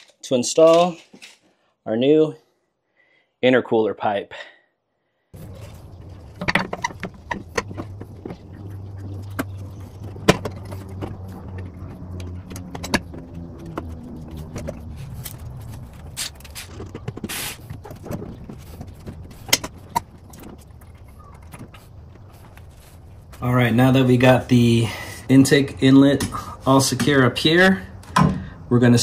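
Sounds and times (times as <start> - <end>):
rustling: 5.4 - 23.6
intake tube knocking and scraping: 5.4 - 24.0
steady low hum: 5.4 - 29.0.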